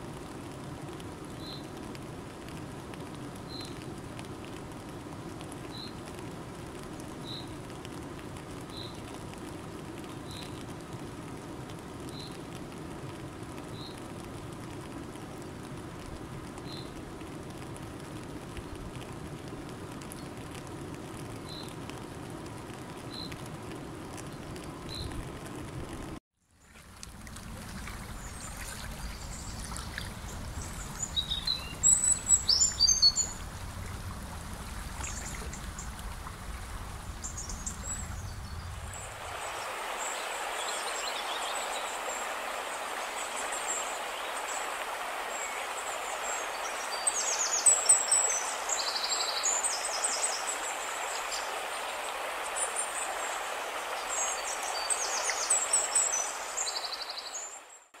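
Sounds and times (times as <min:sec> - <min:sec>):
river water flowing: 0:00.0 - 0:58.0
water pouring over a weir: 0:26.5 - 0:38.0
low rumble: 0:27.2 - 0:39.3
birds chirping: 0:27.7 - 0:57.6.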